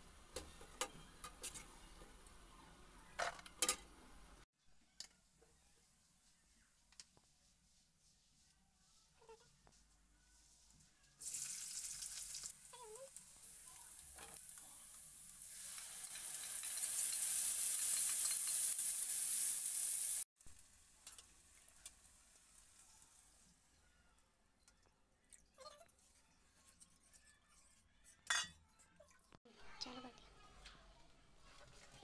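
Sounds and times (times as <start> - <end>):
onion sizzling in hot oil: 11.2 - 23.6.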